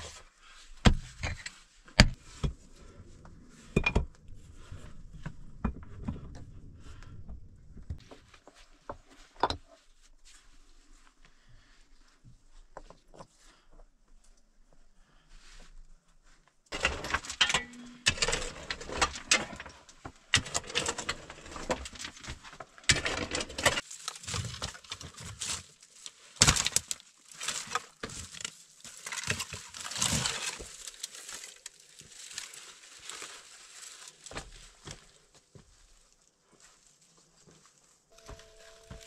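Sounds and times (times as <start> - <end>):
stones knocking and scraping: 16.7 - 25.7.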